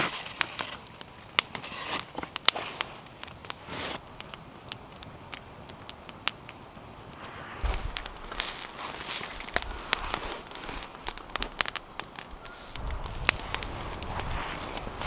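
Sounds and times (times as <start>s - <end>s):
campfire crackling and popping: 0.0s - 15.0s
soft rustles: 7.2s - 15.0s.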